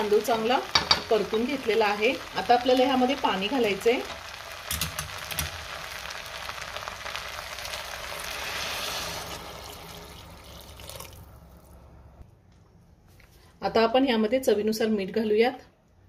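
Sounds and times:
water pouring into pot: 0:02.3 - 0:11.7.

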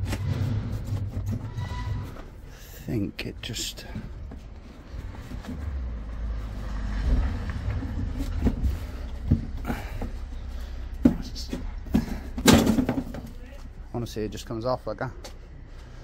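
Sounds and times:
low rumble: 0:04.0 - 0:11.0.

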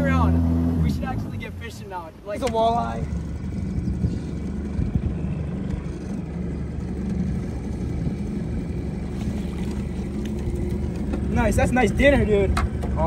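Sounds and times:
outboard motor running: 0:00.0 - 0:13.0.

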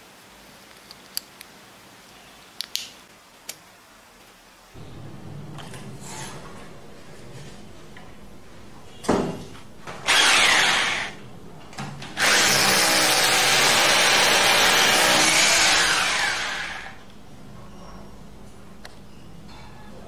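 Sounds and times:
hammer drill boring into plaster: 0:10.0 - 0:11.2, 0:12.2 - 0:17.0.

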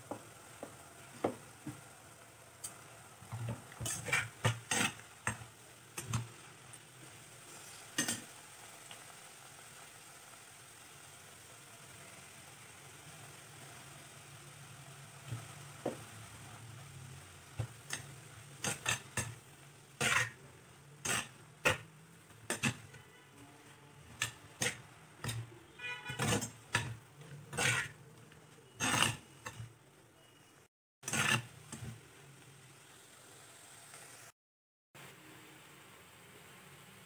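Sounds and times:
steel spatula scraping a pot: 0:03.3 - 0:06.4, 0:07.1 - 0:08.3, 0:17.6 - 0:30.4, 0:31.0 - 0:32.0.

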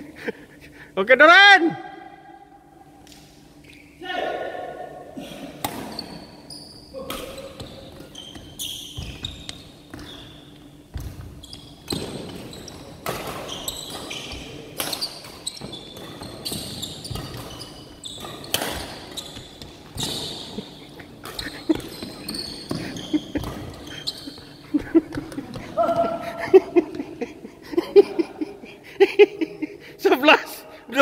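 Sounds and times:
racket hitting shuttlecock: 0:05.5 - 0:06.2, 0:06.9 - 0:10.1, 0:10.9 - 0:23.8
shoes squeaking on wooden floor: 0:05.8 - 0:26.1.

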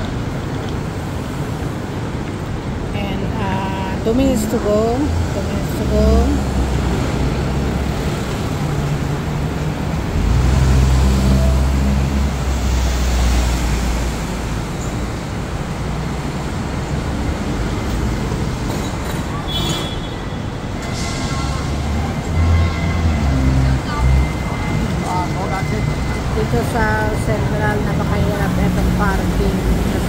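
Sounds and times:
road noise hiss: 0:00.0 - 0:30.0
truck engine passing: 0:05.1 - 0:14.8.

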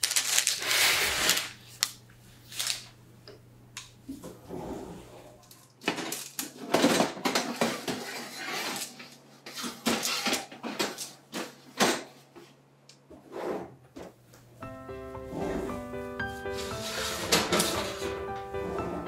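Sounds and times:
baking tray scraping oven rack: 0:06.5 - 0:11.0, 0:15.3 - 0:15.8, 0:16.5 - 0:19.0.

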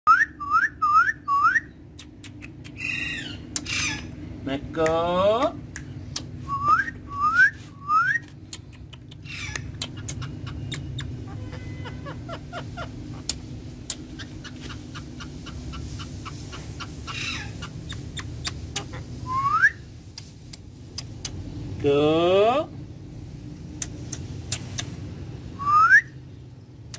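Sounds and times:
faint bird clicks: 0:08.2 - 0:11.2
parakeet rising whistles: 0:19.2 - 0:19.8, 0:25.6 - 0:26.2.

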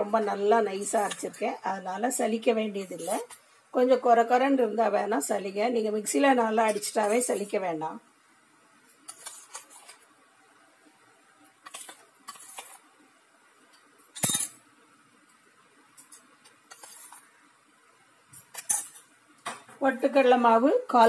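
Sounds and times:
steel spoon clinking and scraping: 0:18.4 - 0:19.1.

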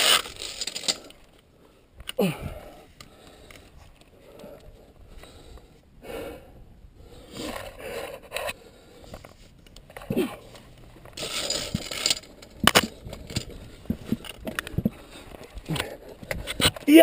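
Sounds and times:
gear scraping against rock: 0:00.0 - 0:01.2, 0:07.3 - 0:17.0.

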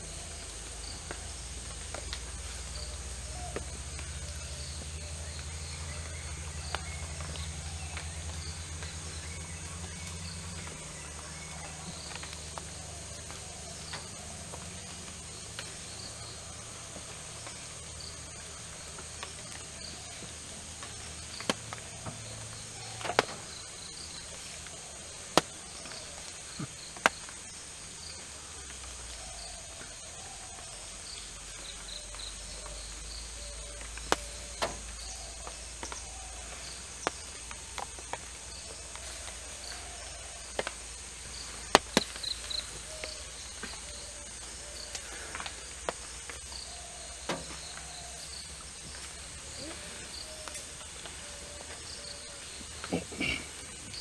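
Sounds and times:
insects chorus: 0:00.0 - 0:54.0
sharp cracks or snaps: 0:33.8 - 0:46.5.

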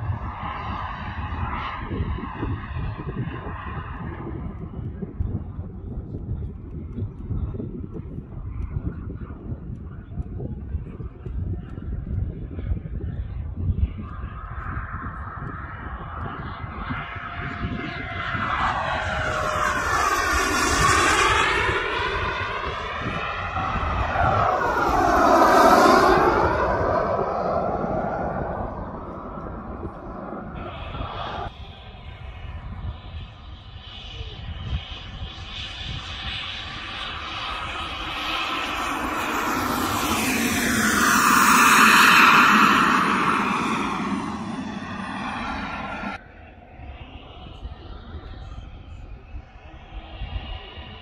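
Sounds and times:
turbine jet passing: 0:13.4 - 0:51.0.

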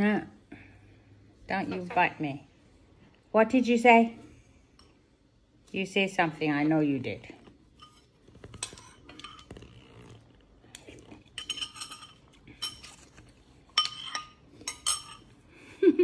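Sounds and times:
spoon clinking on ceramic bowl: 0:11.4 - 0:13.0, 0:13.7 - 0:15.3.

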